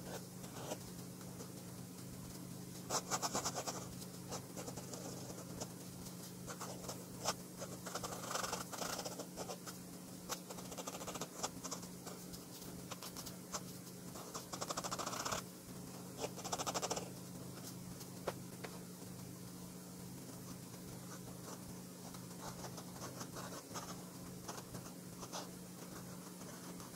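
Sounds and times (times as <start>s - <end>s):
pen scratching on paper: 0.0s - 1.5s, 2.9s - 5.8s, 6.4s - 15.5s, 16.1s - 17.7s, 20.4s - 26.9s
pen nib ticks: 14.3s - 15.4s, 16.2s - 17.1s.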